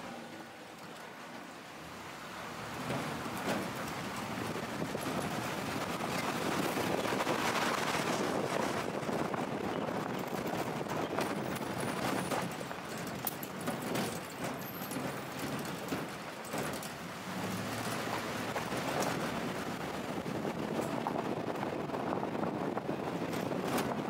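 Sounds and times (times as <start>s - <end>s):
road noise: 0.0s - 24.0s
knocks and rattles from bumps: 2.6s - 24.0s
wind on microphone: 3.5s - 12.8s, 17.6s - 24.0s.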